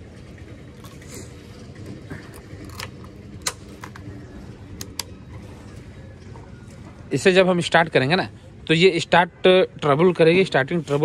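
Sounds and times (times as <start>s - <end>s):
steady low hum: 0.0s - 9.8s.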